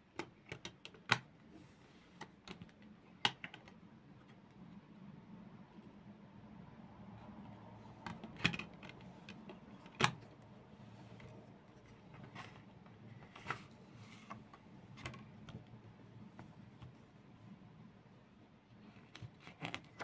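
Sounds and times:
clicks and taps handling case: 2.2 - 4.4, 8.0 - 10.4.

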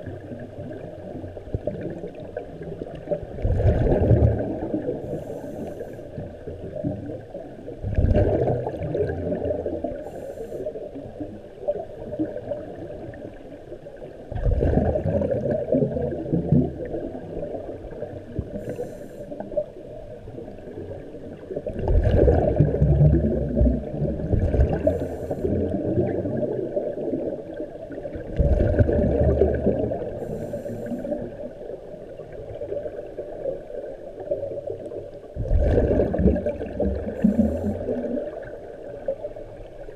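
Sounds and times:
dull underwater wash: 0.0 - 39.9
muffled underwater breathing: 4.8 - 6.7, 9.8 - 11.2, 18.3 - 19.8, 24.6 - 26.1, 29.8 - 31.6, 36.9 - 38.6.

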